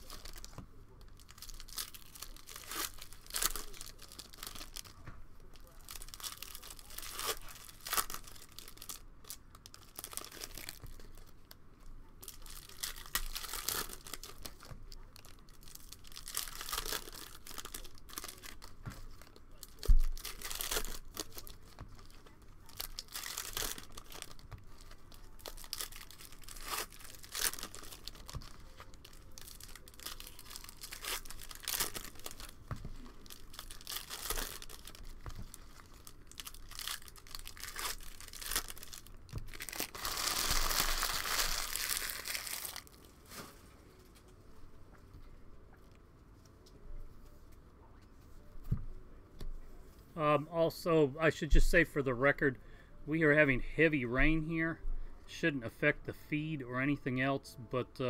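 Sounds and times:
foil wrappers crinkling and tearing: 0.0 - 11.5, 12.2 - 44.3.

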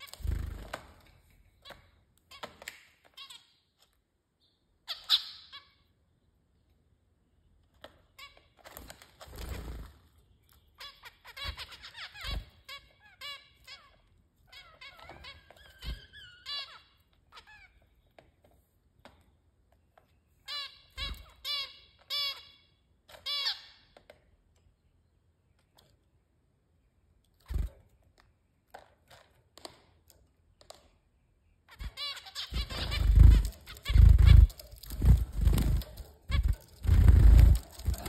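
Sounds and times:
finches beeping calls: 31.9 - 37.6.

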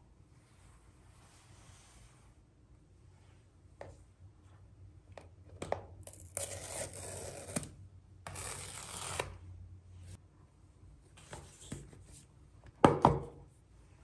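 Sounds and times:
paper strip tearing: 6.1 - 9.4.

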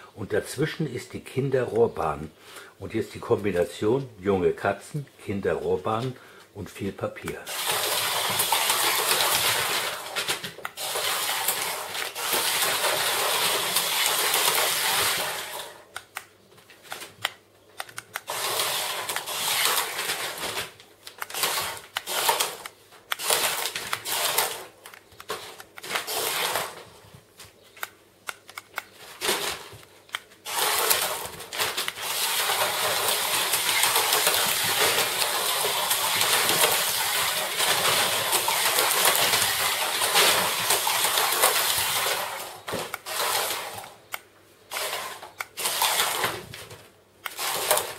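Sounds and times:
packing paper crinkling and rustling: 7.5 - 15.6, 18.3 - 27.7, 28.9 - 44.1.

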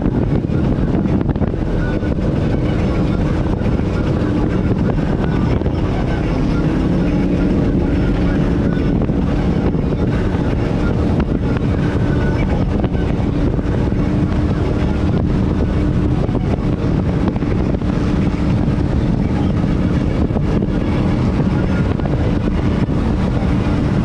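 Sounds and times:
boat engine droning: 0.0 - 24.0
wind rushing over microphone: 0.0 - 24.0.

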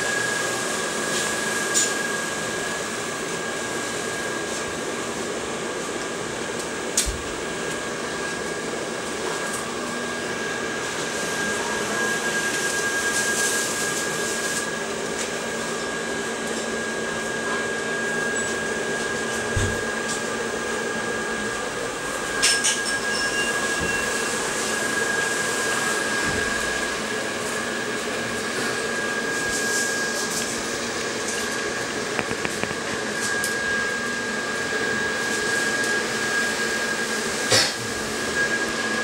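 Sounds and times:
electric blower motor whirring: 0.0 - 39.0.

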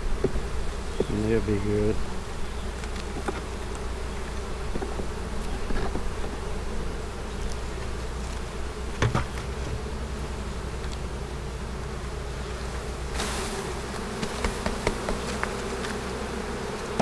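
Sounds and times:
honeybees buzzing: 0.0 - 17.0
wooden hive parts knocking: 9.0 - 9.7, 13.9 - 16.0.

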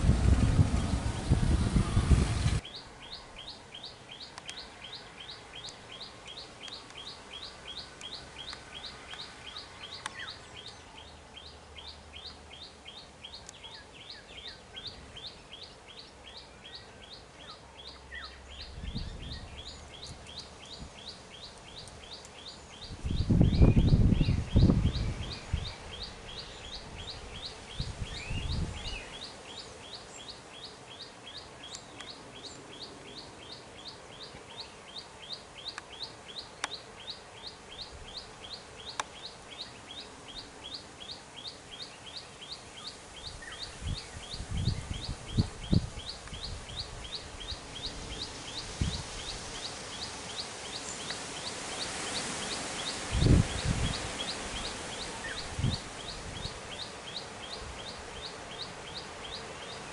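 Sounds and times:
low thuds and rumbles: 0.0 - 2.6.

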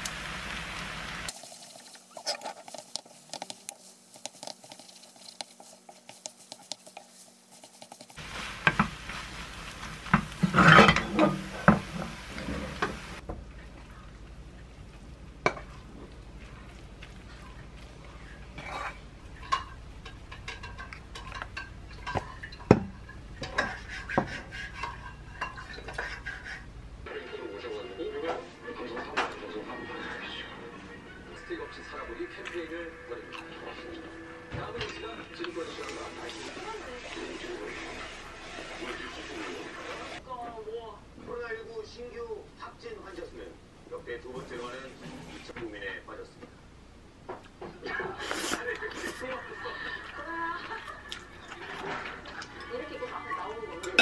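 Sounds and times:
noodles sizzling in a pan: 0.0 - 25.7, 31.0 - 40.2
spatula scraping a pan: 1.3 - 13.2, 17.3 - 26.7.

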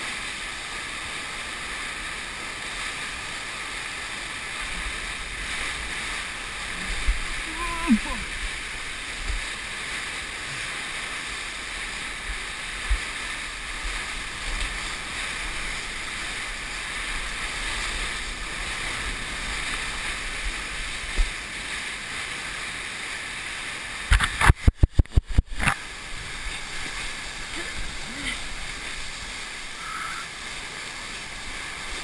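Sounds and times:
fast river water rushing: 0.0 - 32.0
wind thumps on microphone: 24.1 - 26.9.

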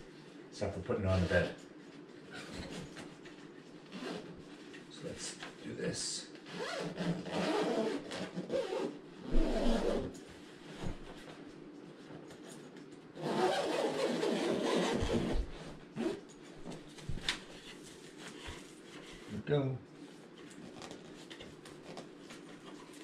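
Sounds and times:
zipper being pulled closed: 3.9 - 4.3, 6.5 - 10.1, 13.2 - 16.2
fabric rubbing: 6.6 - 11.1, 13.2 - 16.2.

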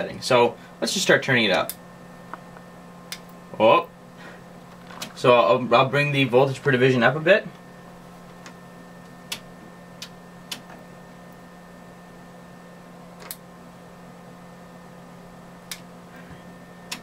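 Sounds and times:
steady low hum: 0.0 - 17.0
rotary switch clicks: 9.3 - 10.8, 13.2 - 13.4, 15.7 - 15.9.

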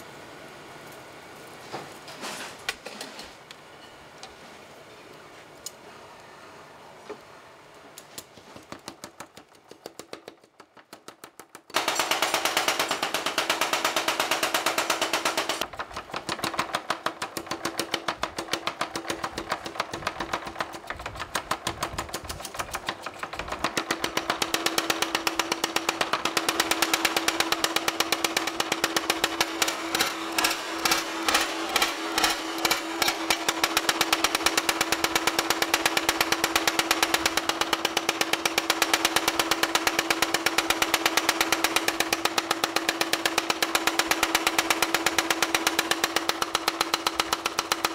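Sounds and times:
power hammer pounding steel: 8.8 - 47.9
motor hum: 11.7 - 47.9.

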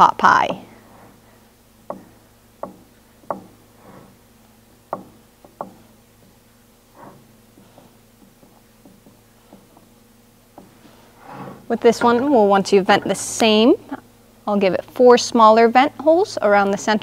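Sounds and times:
pie dish knocking on wooden board: 4.9 - 6.4.

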